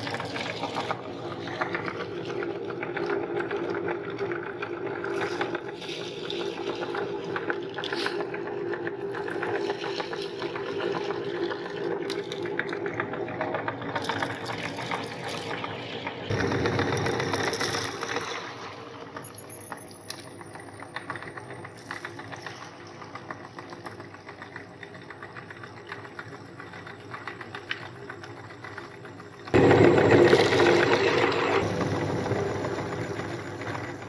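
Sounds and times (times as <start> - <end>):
grinder motor hum: 29.5 - 34.0.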